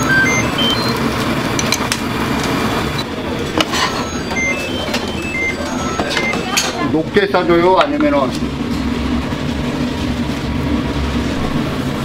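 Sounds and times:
short high-pitched tones: 0.0 - 0.9, 3.7 - 6.9
gas burners roaring: 0.0 - 12.0.

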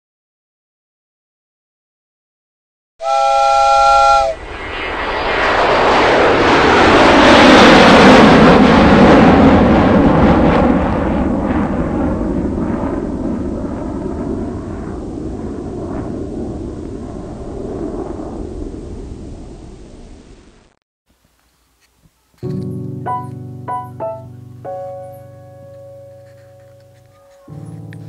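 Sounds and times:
horn-like blast: 3.0 - 4.5.

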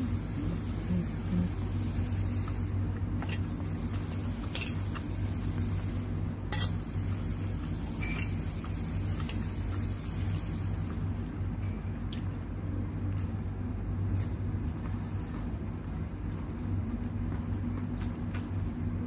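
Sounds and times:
steady low hum: 0.0 - 19.0
fork clinking against plate: 6.5 - 6.8.

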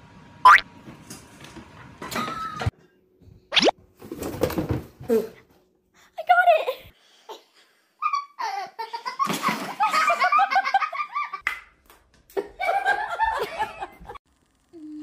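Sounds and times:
people laughing: 8.4 - 11.4, 12.3 - 14.2.

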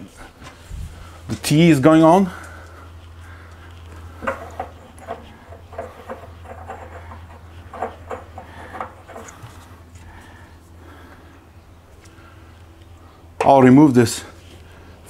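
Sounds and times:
steady low hum: 0.0 - 15.0
metal fitting clicking and rubbing: 4.2 - 9.7.

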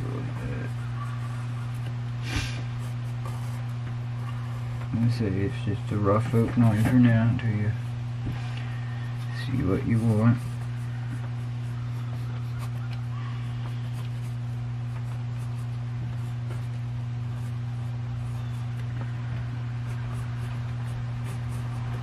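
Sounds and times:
steady low hum: 0.0 - 22.0
pencil scratching on paper: 9.3 - 22.0.

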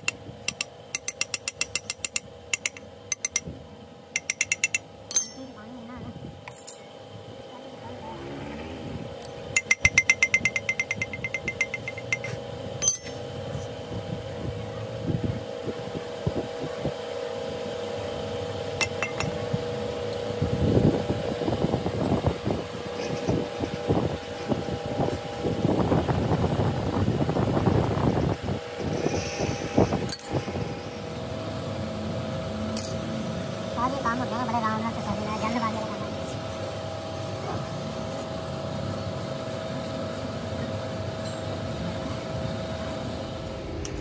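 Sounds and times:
sharp metallic ticks: 0.0 - 3.5, 4.2 - 5.4, 9.6 - 13.0
workshop machinery humming: 0.0 - 44.0.

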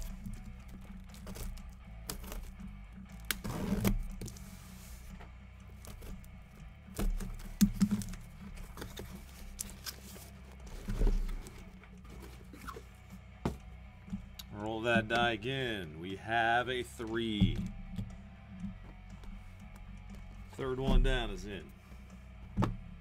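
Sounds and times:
quiet background music: 0.0 - 23.0
card boxes clicking and crinkling: 5.7 - 14.3.

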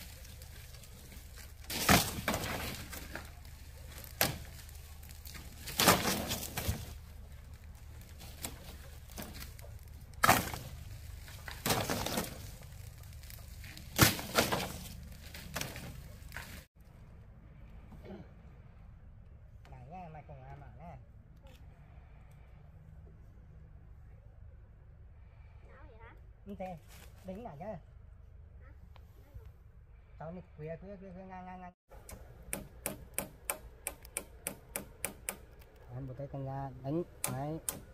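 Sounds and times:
bamboo poles clattering onto pile: 0.0 - 7.0, 8.0 - 16.7
dry leaves crackling: 0.0 - 16.9.

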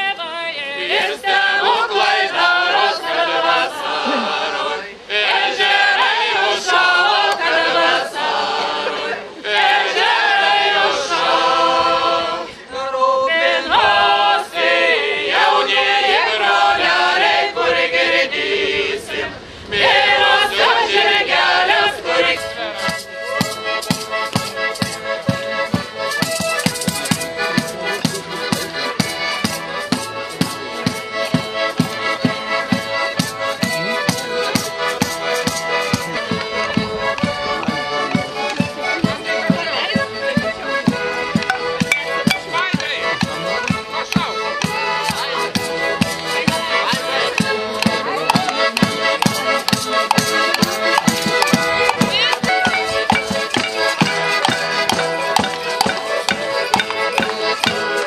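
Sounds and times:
women singing folk song: 0.0 - 26.4, 45.6 - 58.0
accordion: 0.0 - 58.0
steady drum beat: 22.8 - 58.0.

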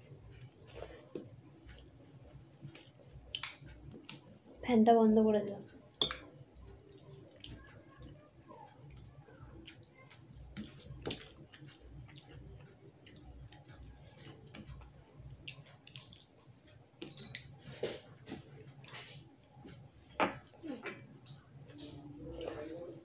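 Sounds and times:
chewing: 6.3 - 16.8.

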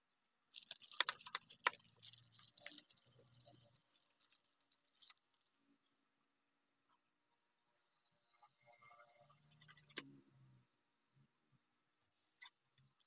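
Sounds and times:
plastic wrapping crinkling: 0.6 - 5.3.

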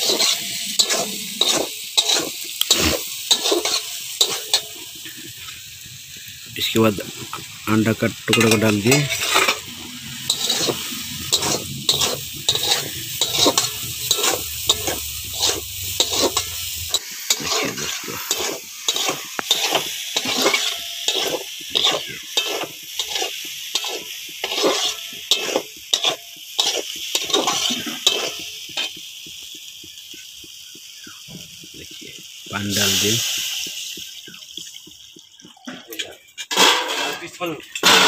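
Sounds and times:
metal spatula scraping pan: 0.0 - 5.5, 8.2 - 29.0, 35.7 - 38.0
frying sizzle: 0.0 - 38.0.

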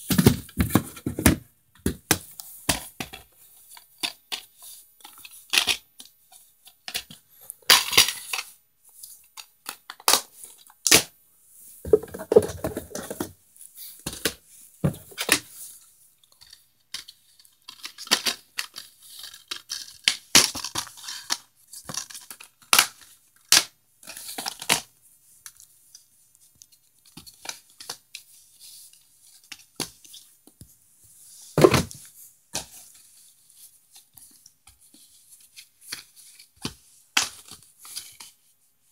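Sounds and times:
plastic dvd cases being handled: 11.9 - 13.3.

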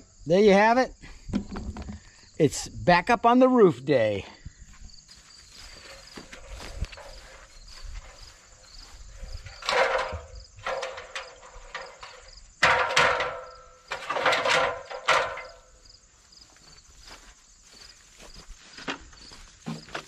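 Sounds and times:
metal ladder clanking and rattling: 5.8 - 8.4, 9.0 - 15.8.

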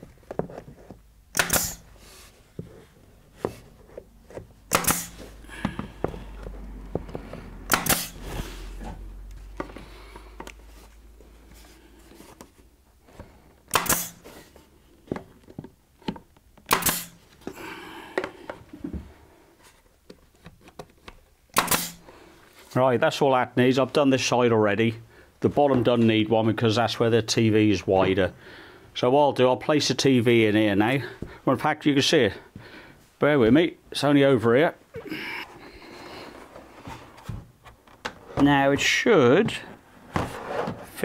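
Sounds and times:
nail gun shots: 1.3 - 1.8, 4.7 - 5.2, 7.7 - 8.2, 13.7 - 14.2, 16.7 - 17.2, 21.5 - 22.0.

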